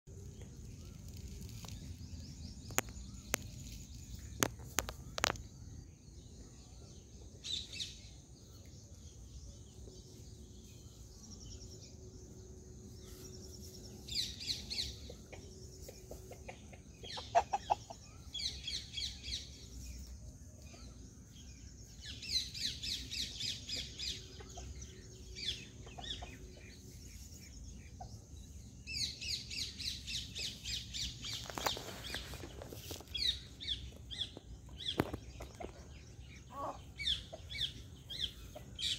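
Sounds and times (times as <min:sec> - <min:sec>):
small birds chirping: 0:00.1 - 0:38.9
chickens clucking: 0:14.7 - 0:18.6, 0:23.5 - 0:28.4, 0:31.2 - 0:38.9.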